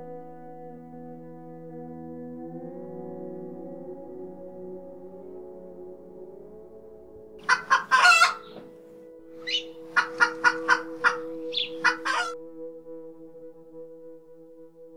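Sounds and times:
background music with held notes: 0.0s - 14.9s
chickens clucking and squawking: 7.4s - 8.6s, 9.5s - 12.4s.

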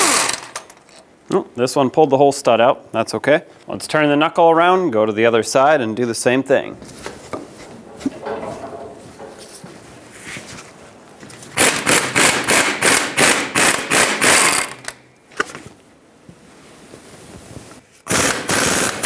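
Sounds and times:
impact gun hammering: 11.6s - 14.8s.

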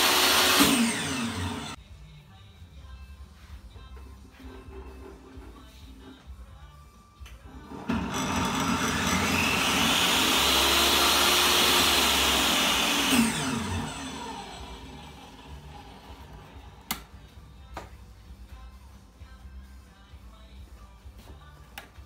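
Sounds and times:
saw winding down whine: 0.0s - 1.8s, 7.7s - 16.8s
table saw running: 0.0s - 1.8s, 7.6s - 16.8s.

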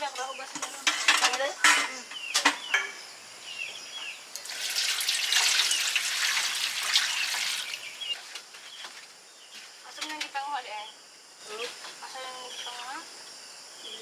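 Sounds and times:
birds chirping: 0.0s - 13.1s
metal basin clinking: 0.5s - 3.0s
water running into metal basin: 4.3s - 8.2s.

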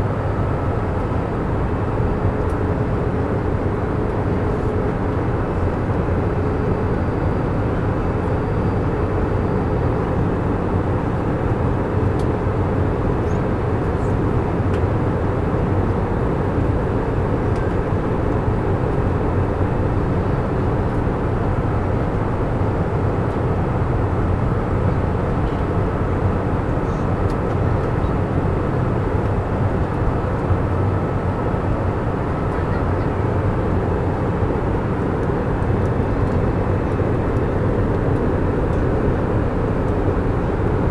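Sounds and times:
airliner cabin drone: 0.0s - 40.9s.

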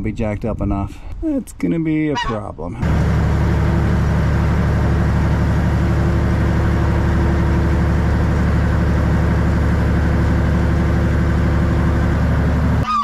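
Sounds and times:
excavator diesel engine running: 2.8s - 13.0s.

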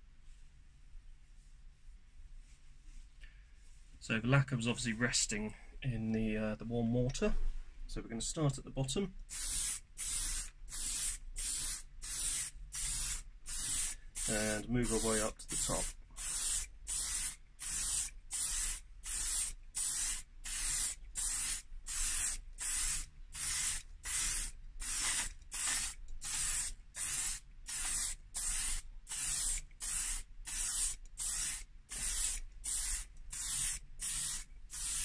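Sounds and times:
aerosol can spraying in bursts: 9.3s - 35.0s.

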